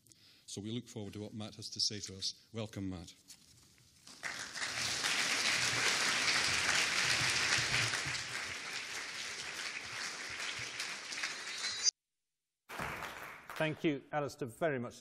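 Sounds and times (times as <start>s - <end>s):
audience applauding: 4.1s - 11.9s, 12.7s - 13.8s.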